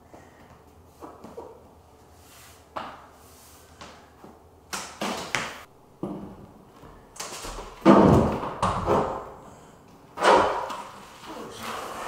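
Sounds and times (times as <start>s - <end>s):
planks knocking and thudding: 7.4s - 9.3s.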